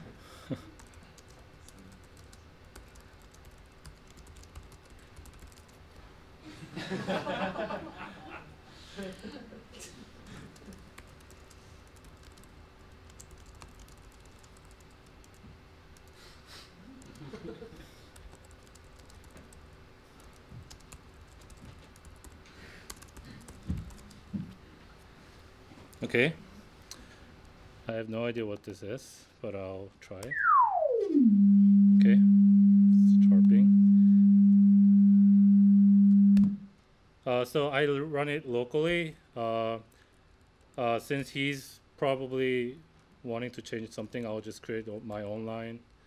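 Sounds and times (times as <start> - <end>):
low room hum: 0.0 - 46.0
laptop keyboard typing: 0.8 - 5.8, 10.6 - 15.4, 18.2 - 24.2.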